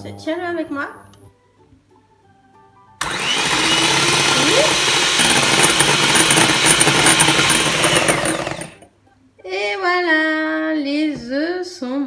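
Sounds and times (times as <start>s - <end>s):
electric hand mixer running: 3.0s - 8.9s.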